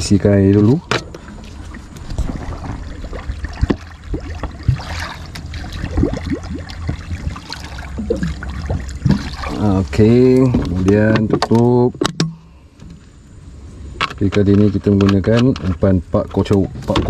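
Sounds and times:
water gurgling into a bottle: 1.2s - 10.9s.

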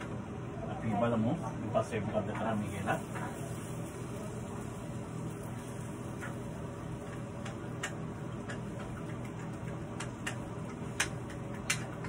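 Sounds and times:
steady background hum: 0.0s - 12.0s
spatula tapping frying pan: 6.2s - 12.0s.

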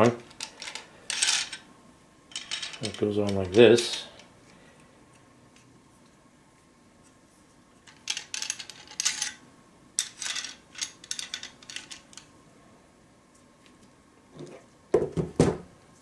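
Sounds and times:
metal parts clinking and rattling: 0.0s - 1.7s, 2.3s - 4.2s, 7.9s - 9.4s, 10.0s - 12.3s.

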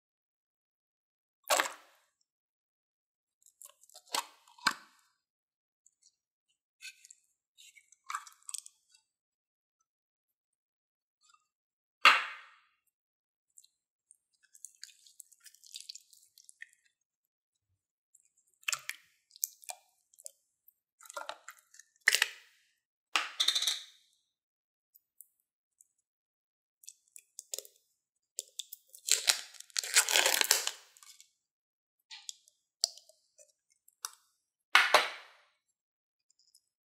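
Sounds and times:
plastic tubs crackling and clicking: 28.4s - 31.2s
plastic lid clicks and snaps: 34.8s - 35.4s.

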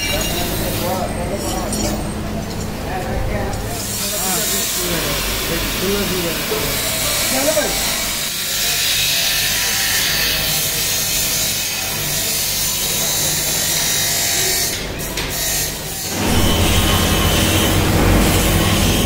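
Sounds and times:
buffing machine motor hum: 16.1s - 19.0s.

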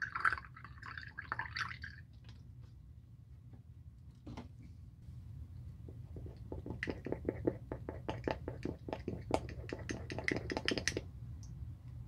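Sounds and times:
toothbrush rattling in glass of water: 6.2s - 11.0s.

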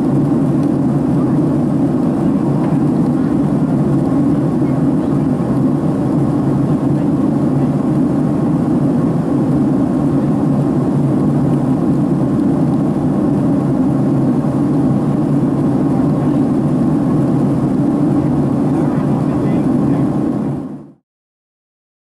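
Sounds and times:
airliner engine drone: 0.0s - 21.0s.

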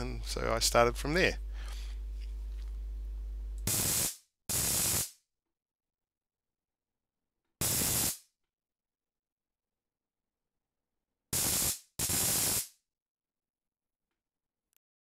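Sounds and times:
electrical sparking bursts: 3.6s - 5.2s, 7.6s - 8.2s, 11.3s - 12.8s.

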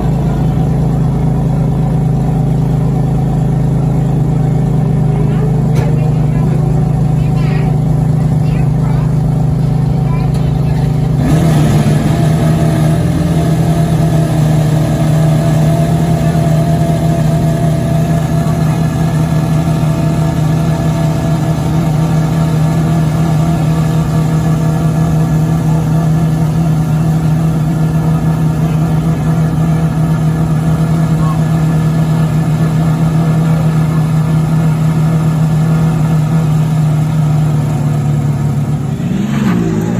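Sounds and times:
car engine idling: 0.0s - 39.9s.

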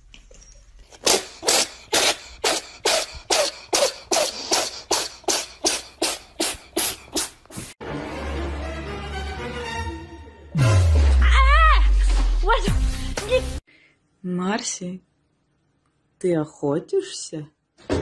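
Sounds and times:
breathy hissing puffs: 1.0s - 7.8s.

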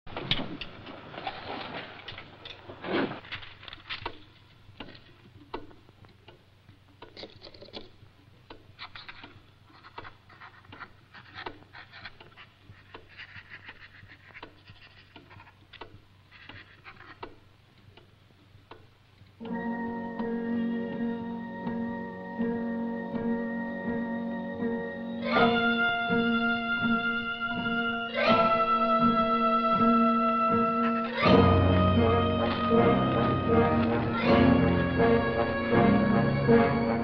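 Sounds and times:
pen nib scratching paper: 9.7s - 15.6s.

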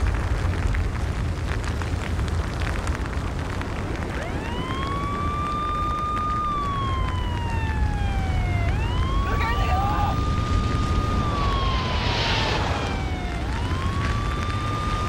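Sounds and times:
crackles: 0.0s - 15.0s
deep continuous rumble: 0.0s - 15.0s
siren wailing: 3.7s - 15.0s.

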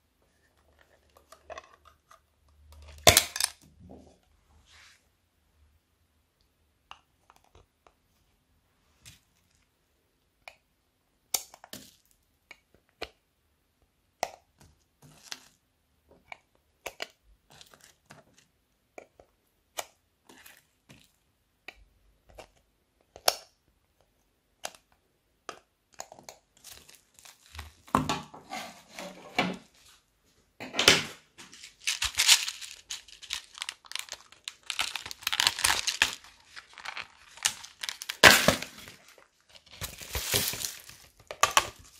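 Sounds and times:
plastic box crackling and clicking: 31.7s - 41.9s.

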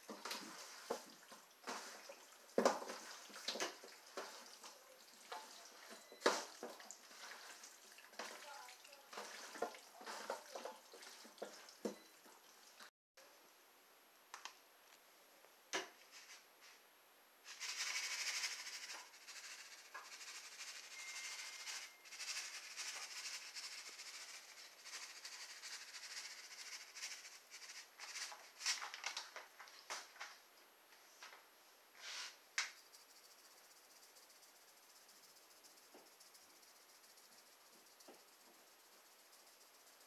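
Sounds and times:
seasoning rattling from shakers: 0.0s - 11.7s, 17.5s - 29.4s, 32.6s - 40.0s
shaker containers clicking: 17.5s - 29.4s.

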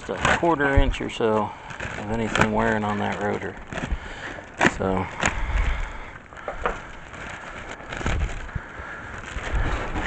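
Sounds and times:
camera handling rustle: 1.8s - 10.0s.

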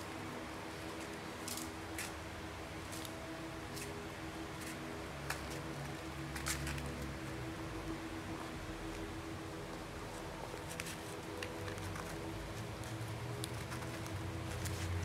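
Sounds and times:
steady background hum: 0.0s - 15.0s
plastic and cardboard crinkling: 10.5s - 15.0s.

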